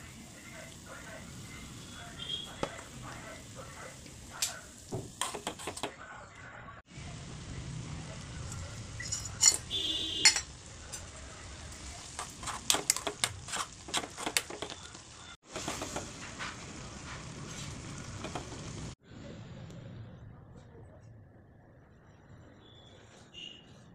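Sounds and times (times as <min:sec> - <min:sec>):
metal spoon scraping a pan: 0:05.2 - 0:05.9, 0:08.5 - 0:11.1, 0:11.7 - 0:14.9
boiling water bubbling: 0:11.5 - 0:19.0.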